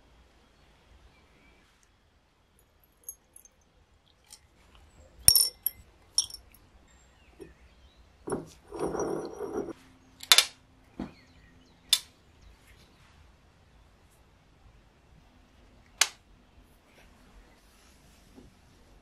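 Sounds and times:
metal parts clinking on glass: 0:02.9 - 0:03.6, 0:05.3 - 0:06.6, 0:08.3 - 0:09.7.

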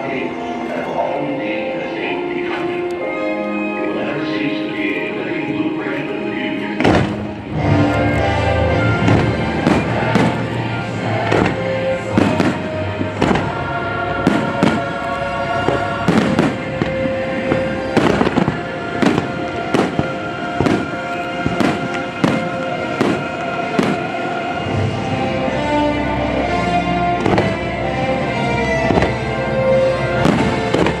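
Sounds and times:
loud music: 0:00.0 - 0:31.0
fireworks bursting: 0:06.6 - 0:25.2, 0:27.1 - 0:27.8, 0:28.8 - 0:31.0.

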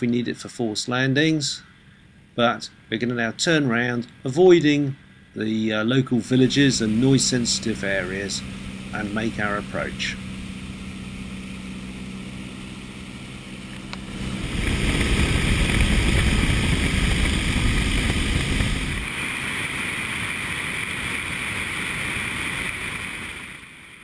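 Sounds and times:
airplane engine running: 0:00.0 - 0:24.0
wind rush: 0:14.0 - 0:23.6.

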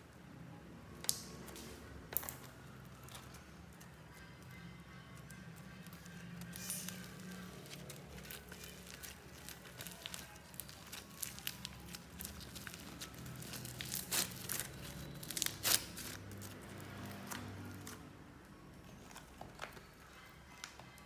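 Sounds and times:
slime crackling and popping: 0:06.4 - 0:16.5.

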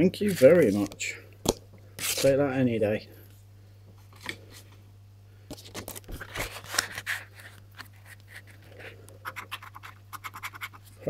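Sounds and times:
paper cards rustling: 0:05.5 - 0:11.0.

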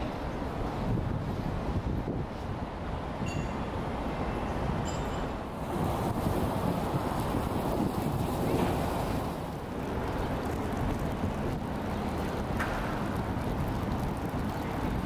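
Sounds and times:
wind rumbling on microphone: 0:00.0 - 0:15.0
water rushing over fountain edges: 0:05.5 - 0:15.0.

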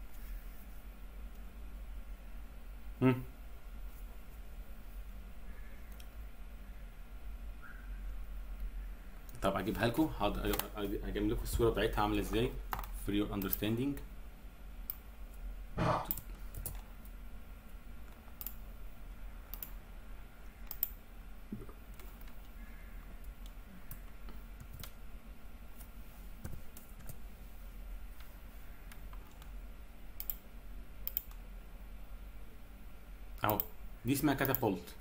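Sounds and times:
steady low hum: 0:00.0 - 0:35.0
computer mouse clicks: 0:05.9 - 0:06.1, 0:16.0 - 0:16.8, 0:18.1 - 0:18.6, 0:19.5 - 0:19.8, 0:20.6 - 0:21.0, 0:23.2 - 0:25.0, 0:30.2 - 0:30.4, 0:31.0 - 0:31.4, 0:34.4 - 0:34.7.

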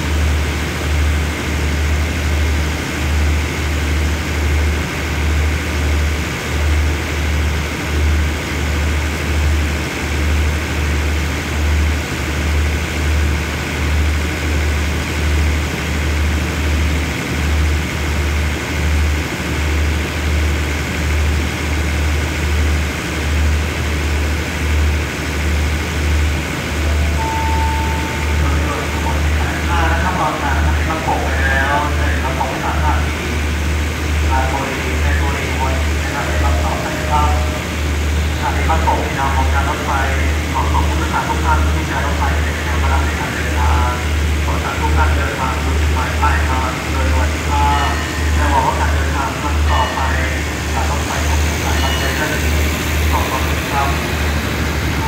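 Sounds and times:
diesel train engines idling: 0:00.0 - 0:55.0
faint steady whine: 0:26.7 - 0:33.1, 0:41.9 - 0:55.0.

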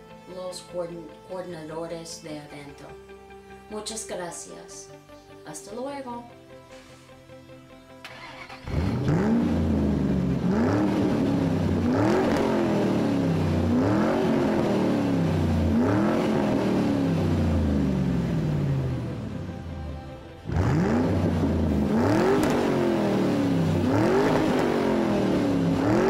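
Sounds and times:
car engine revving: 0:08.1 - 0:26.0.

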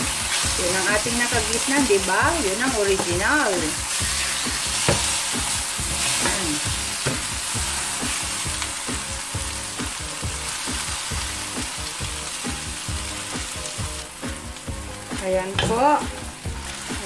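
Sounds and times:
chicken sizzling in a skillet: 0:00.0 - 0:17.0
spatula scraping and knocking pan: 0:02.7 - 0:08.6, 0:15.4 - 0:17.0.

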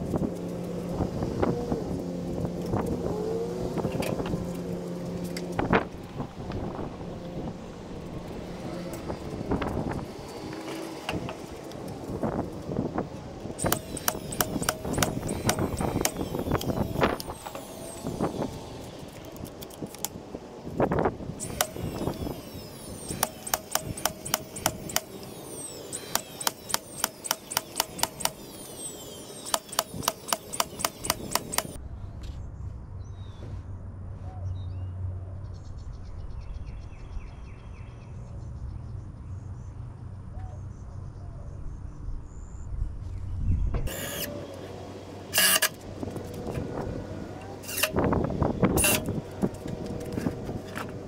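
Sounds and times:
low hum: 0:00.0 - 0:36.6
nail gun firing into boards: 0:13.6 - 0:16.7, 0:23.0 - 0:25.2, 0:25.9 - 0:28.4, 0:29.4 - 0:31.8.

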